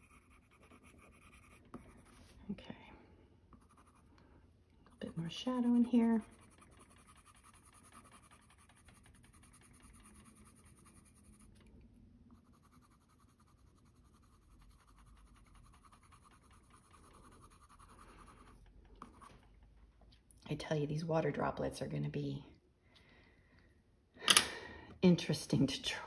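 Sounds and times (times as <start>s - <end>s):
colored pencil scratching on paper: 0.0s - 2.4s, 3.5s - 4.1s, 4.9s - 11.7s, 12.3s - 19.4s.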